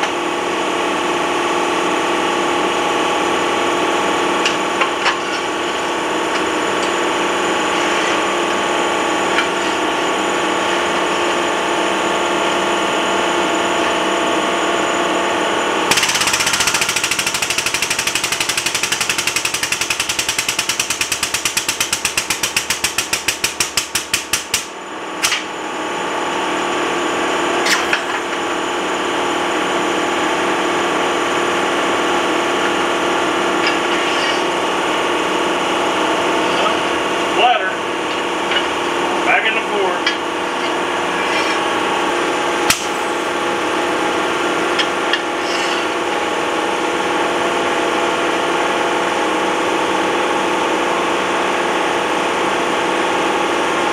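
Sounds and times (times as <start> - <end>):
steady machine hum: 0.0 - 53.9
hydraulic pump hammering: 15.9 - 25.5, 32.4 - 46.4.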